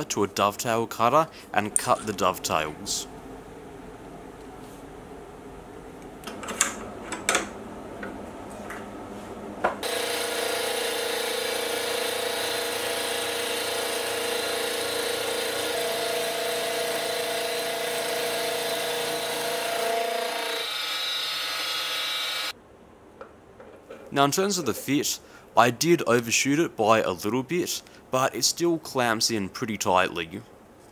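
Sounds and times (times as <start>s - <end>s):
milling machine cutting steel: 9.8s - 22.5s.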